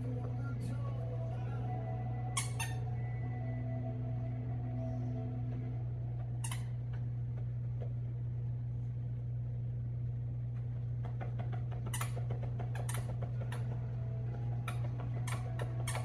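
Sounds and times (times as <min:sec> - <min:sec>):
steady low hum: 0:00.0 - 0:16.0
dog chewing plush toy: 0:11.0 - 0:16.0.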